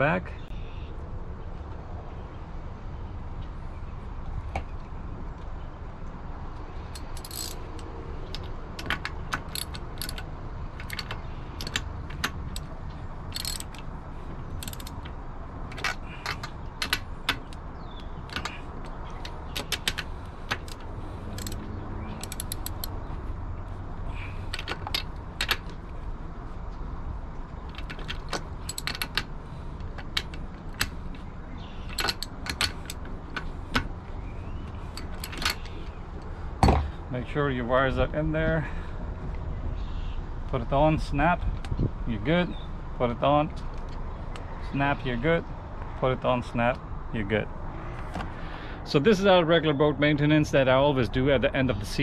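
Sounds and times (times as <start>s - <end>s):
ratchet wrench clicking: 6.9s - 13.9s, 14.5s - 15.1s, 19.2s - 23.0s, 27.8s - 29.3s.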